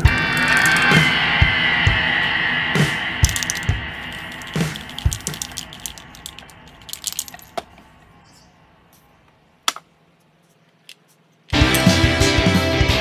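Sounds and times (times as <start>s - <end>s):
music: 0.0s - 6.1s, 11.5s - 13.0s.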